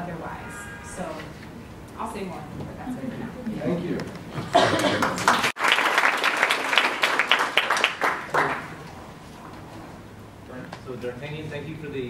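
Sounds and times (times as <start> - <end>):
audience applauding: 4.7 - 8.9.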